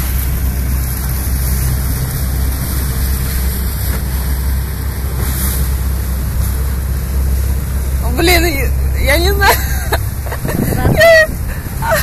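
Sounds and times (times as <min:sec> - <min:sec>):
motorboat engine and water rush: 0:00.0 - 0:12.0
wind on microphone: 0:10.2 - 0:12.0.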